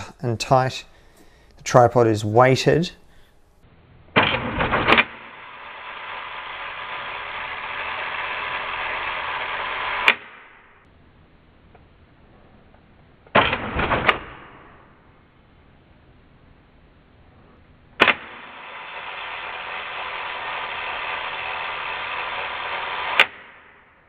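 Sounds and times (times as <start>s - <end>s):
steady hiss: 5.2s - 10.8s, 18.3s - 23.3s.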